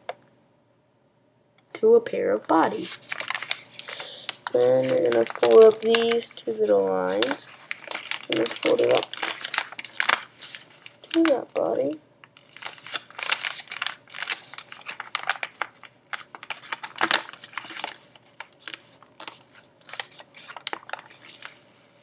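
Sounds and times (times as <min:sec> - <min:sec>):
paper crinkling and rustling: 0:02.6 - 0:21.8.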